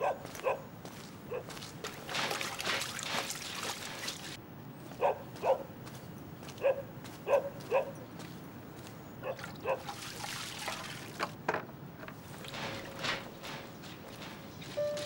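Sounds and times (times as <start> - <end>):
dog barking: 0.0 - 0.7, 1.3 - 1.6, 5.0 - 5.7, 6.6 - 8.0, 9.2 - 9.9.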